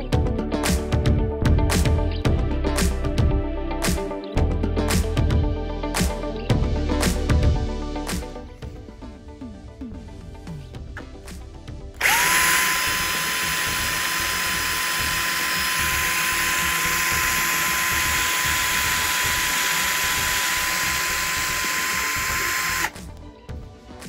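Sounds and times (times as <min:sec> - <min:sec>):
cordless drill boring through metal: 0:12.0 - 0:23.0.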